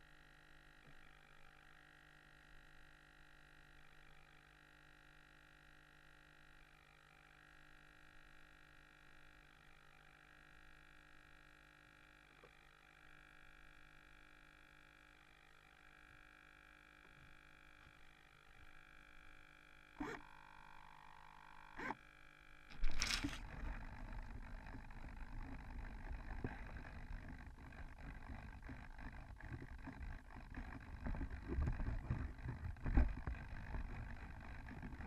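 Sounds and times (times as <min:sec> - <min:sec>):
faint steady tonal hum: 0:17.0 - 0:35.0
rustling and handling noise: 0:22.7 - 0:23.7.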